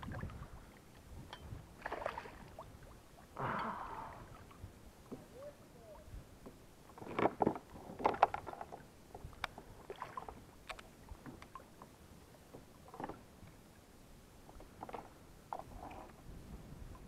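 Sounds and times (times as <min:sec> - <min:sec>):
fish splashing in water: 0:01.8 - 0:02.6.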